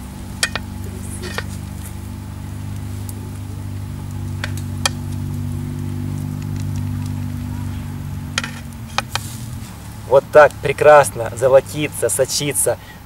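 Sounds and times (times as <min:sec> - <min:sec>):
low drone of held tones: 0:00.0 - 0:12.9
metal skewers clinking on tray: 0:00.4 - 0:01.6.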